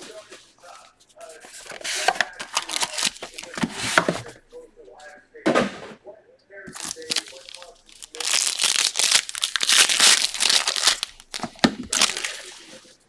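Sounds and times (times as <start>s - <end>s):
foil pack tearing and crinkling: 1.6s - 4.3s, 6.7s - 12.8s.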